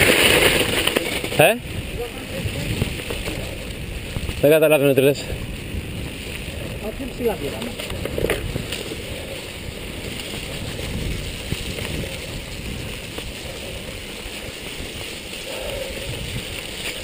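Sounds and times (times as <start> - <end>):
bike rattles: 0.0 - 17.0
wind and tyres rushing: 0.0 - 17.0.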